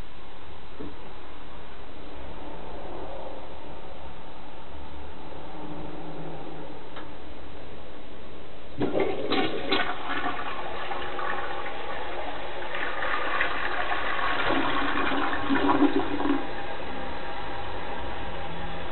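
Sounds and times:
toilet flushing: 0:08.8 - 0:18.9.

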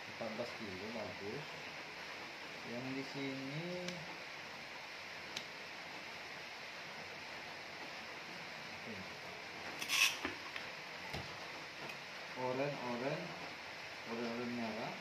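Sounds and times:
background hiss: 0:00.0 - 0:15.0
rustling and scraping: 0:09.7 - 0:10.4.

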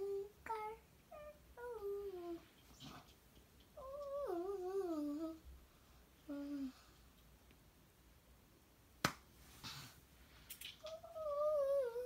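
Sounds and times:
child sing-song vocalizing: 0:00.0 - 0:02.5, 0:03.8 - 0:05.6, 0:10.8 - 0:12.0.

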